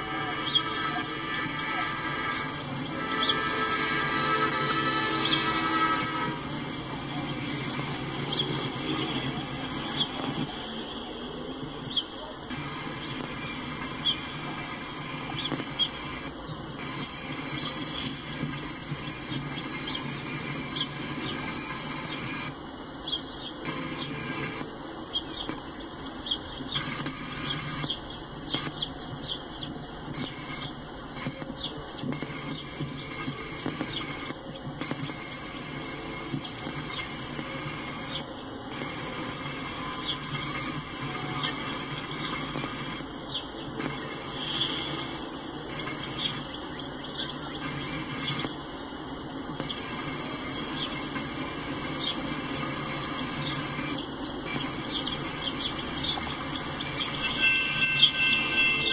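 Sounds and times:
train wheels rolling on rail: 0.0 - 22.6
wheel squeaks and clicks: 26.7 - 29.4.

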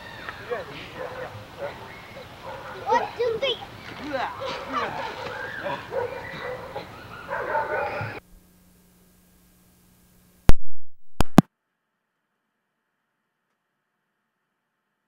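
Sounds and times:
faint steady hum: 5.5 - 11.4
tape switching pops: 10.5 - 11.5.

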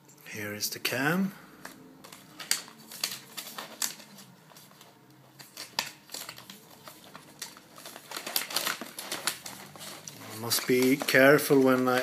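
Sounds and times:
plastic packaging crinkling: 1.6 - 12.0
packaging pulled apart: 5.4 - 12.0.

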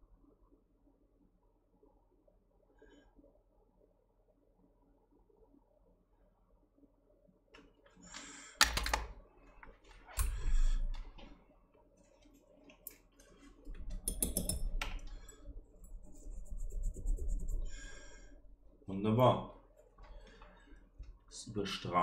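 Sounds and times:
hand tools clicking and tapping: 13.8 - 15.1.

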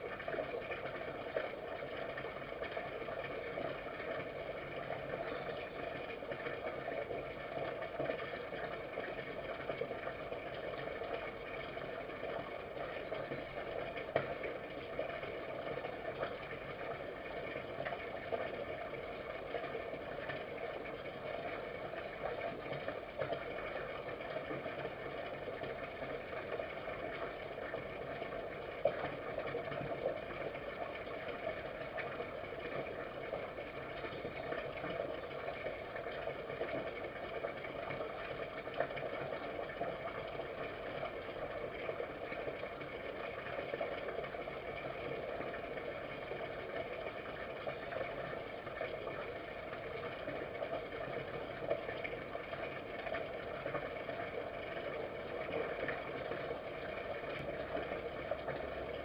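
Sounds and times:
background hum and hiss: 0.0 - 59.0.

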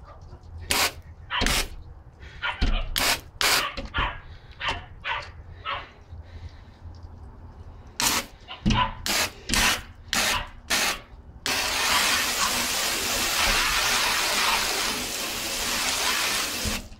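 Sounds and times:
hose water spraying on glass: 0.7 - 1.8, 8.0 - 8.3, 9.0 - 16.9.

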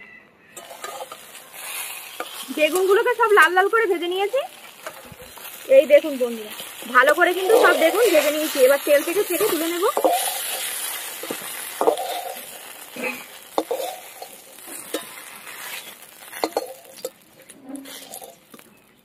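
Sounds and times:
metal spatula scraping a pan: 0.6 - 18.8
oil sizzling in a pan: 0.6 - 19.0.

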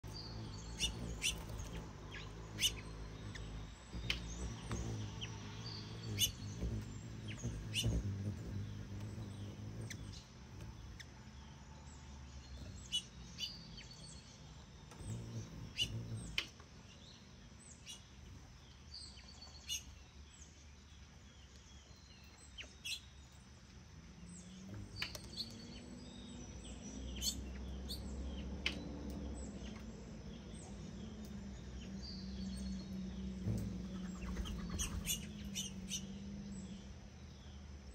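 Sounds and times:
low steady hum: 0.0 - 22.6
small birds chirping: 0.0 - 37.9.

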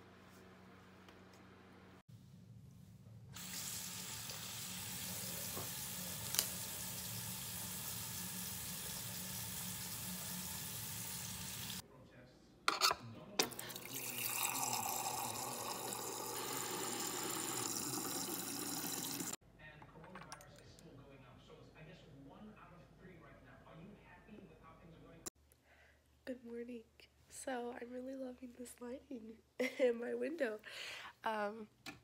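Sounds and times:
water dispensing into glass: 13.4 - 19.4.

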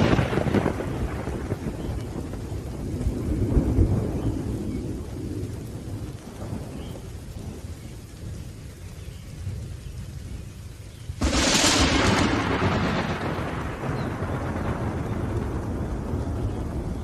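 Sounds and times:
steady rain: 0.0 - 17.0
thunder rumbling: 0.0 - 17.0.

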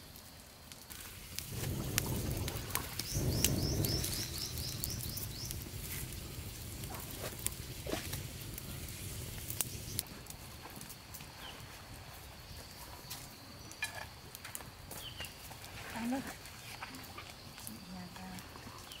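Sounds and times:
bird chirping: 3.0 - 5.7.

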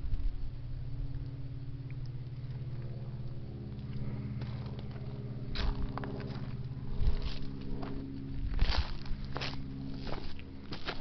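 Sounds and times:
vehicle engine idling: 0.0 - 11.0
crunching scuff: 4.4 - 11.0.

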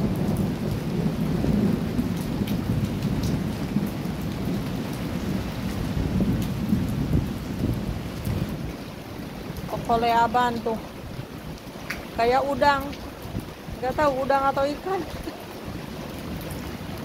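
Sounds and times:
heavy rain splashing into water: 0.0 - 17.0.

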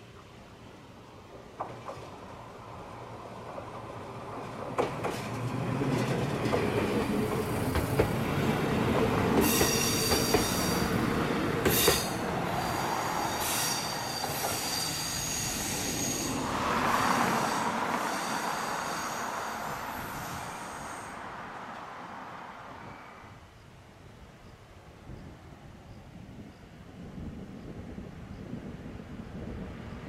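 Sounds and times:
train rumbling past: 0.0 - 23.6, 26.4 - 30.0
rail joint clicks: 1.2 - 2.5, 3.4 - 20.6, 21.5 - 22.0
wheel squeal: 9.4 - 11.0, 11.7 - 21.2.

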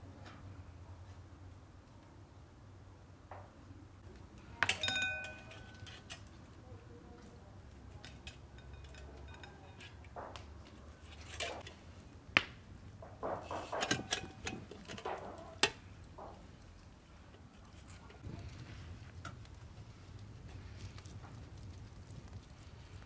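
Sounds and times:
soft handling noises: 4.0 - 23.0
metal skewers scraping metal tray: 4.6 - 6.4, 7.8 - 10.1, 11.0 - 11.8, 13.4 - 15.8.

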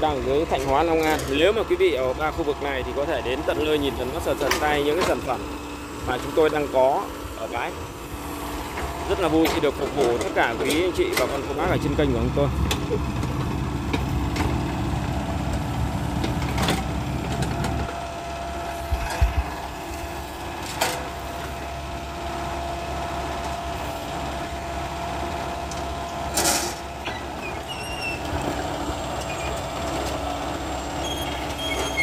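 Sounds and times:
excavator diesel engine running: 0.0 - 32.0
heavy thumps: 18.8 - 19.6.

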